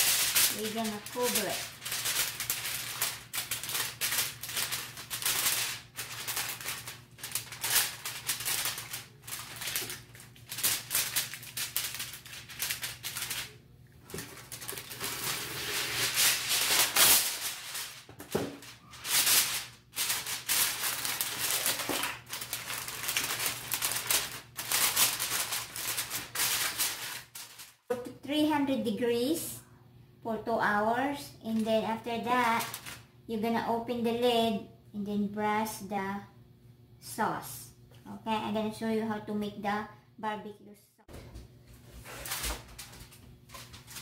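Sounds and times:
aluminum foil crinkling and tearing: 0.0 - 27.9, 31.5 - 33.1, 42.0 - 44.0.

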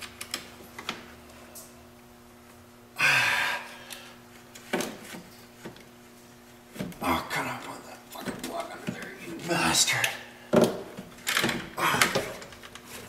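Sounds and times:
steady low hum: 0.0 - 13.0
man exhaling with effort: 3.0 - 4.2.

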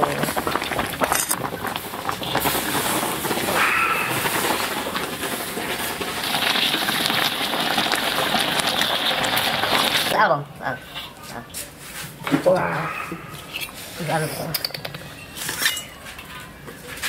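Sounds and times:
water boiling in a wok: 0.0 - 11.2.

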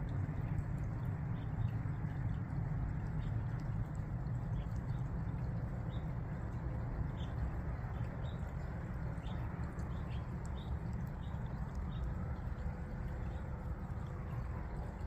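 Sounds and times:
low outdoor rumble: 0.0 - 15.0
birds ticking: 3.2 - 14.9.

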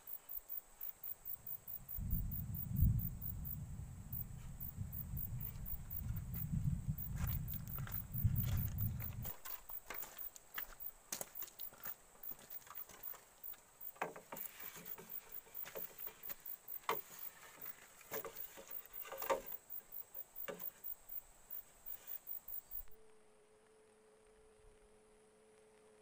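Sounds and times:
insects chirping: 0.0 - 23.0
faint steady hum: 0.0 - 26.0
footsteps on gravel: 5.9 - 19.5
bamboo poles knocking: 13.9 - 20.8.

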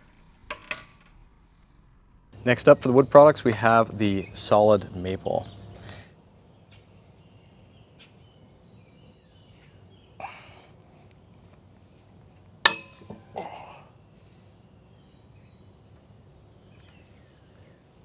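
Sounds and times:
sharp metallic crack with ringing: 12.6 - 13.4.

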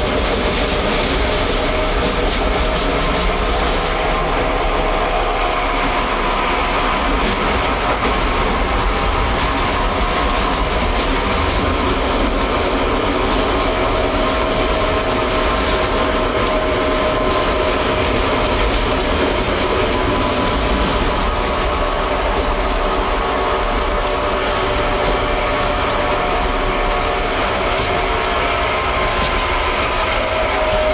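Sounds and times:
tram wheels rumbling on rails: 0.0 - 30.9.

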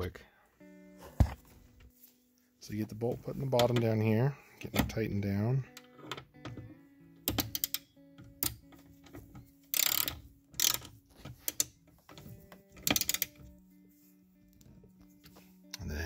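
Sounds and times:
background music: 0.0 - 16.0
socket ratchet clicking: 7.3 - 9.1, 9.7 - 11.8, 12.8 - 13.4.

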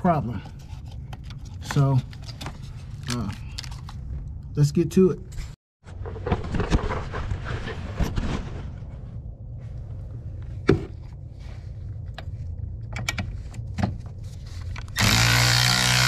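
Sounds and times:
cordless ratchet motor running: 15.0 - 16.0.

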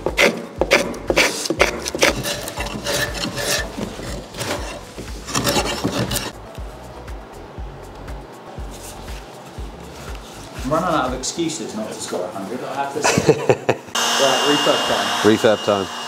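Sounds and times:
hand rasp filing wood: 0.0 - 6.4.

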